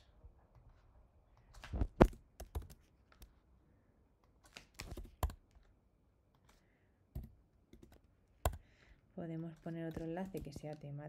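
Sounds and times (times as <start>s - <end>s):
keyboard typing clicks: 1.9s - 3.3s, 4.4s - 5.5s, 7.2s - 8.6s, 9.6s - 10.8s.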